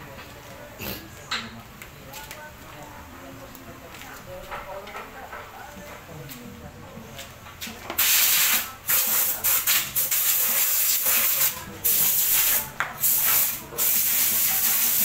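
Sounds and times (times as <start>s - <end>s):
compressed air hissing: 8.0s - 15.0s.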